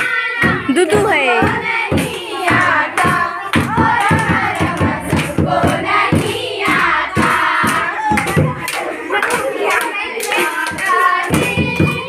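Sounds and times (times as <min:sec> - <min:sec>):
girls singing together: 0:00.0 - 0:12.0
hand-clapping: 0:00.0 - 0:12.0
hand drum beat: 0:00.4 - 0:08.7.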